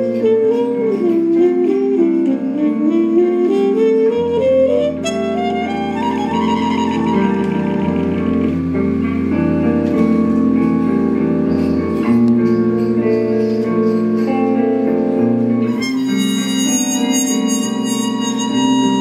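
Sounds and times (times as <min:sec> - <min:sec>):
trumpet: 0:00.0 - 0:08.5, 0:15.7 - 0:19.0
electric guitar: 0:00.0 - 0:19.0.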